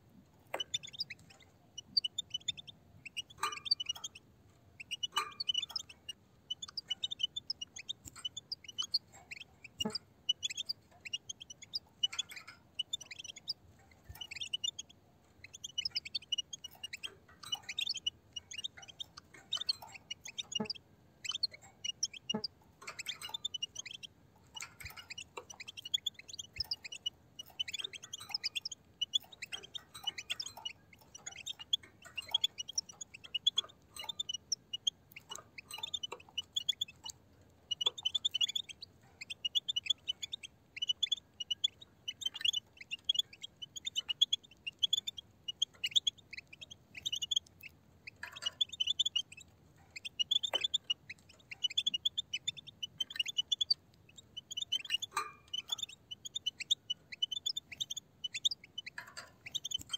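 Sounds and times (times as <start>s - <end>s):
goldfinches twittering: 0.6s - 4.2s, 4.8s - 59.9s.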